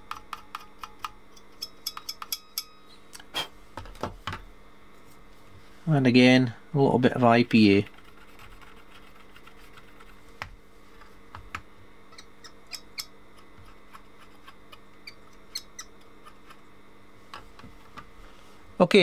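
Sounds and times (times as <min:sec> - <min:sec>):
small parts clicking and tapping: 0:00.0 - 0:02.7
faint steady hum: 0:00.0 - 0:19.0.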